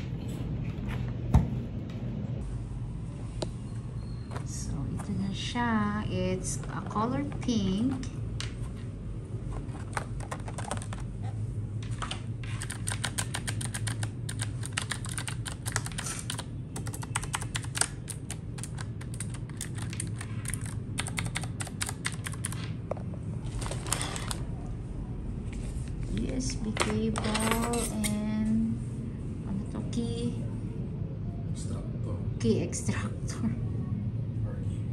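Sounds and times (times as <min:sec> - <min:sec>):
mechanical keyboard typing: 0:09.9 - 0:11.1, 0:12.6 - 0:22.7
plastic rustle: 0:23.4 - 0:24.5.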